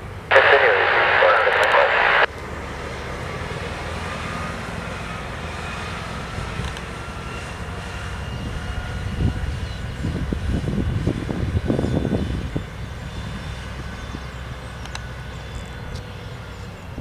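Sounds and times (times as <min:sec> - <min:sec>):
fire engine rumbling: 0:00.2 - 0:17.0.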